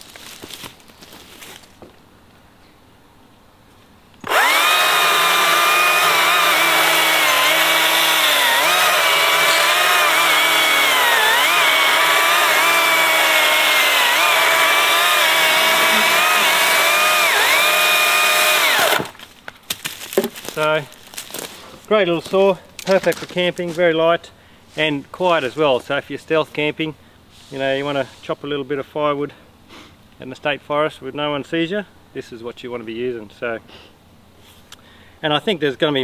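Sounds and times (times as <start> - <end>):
electric chainsaw cutting log: 4.2 - 19.2.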